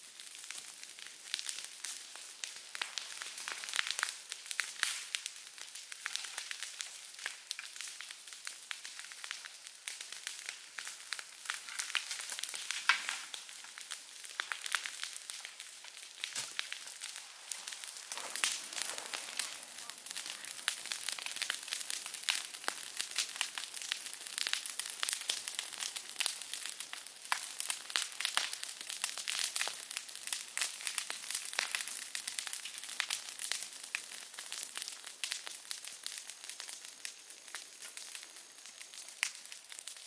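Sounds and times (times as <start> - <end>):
dry leaves and twigs crackling: 11.5 - 23.5.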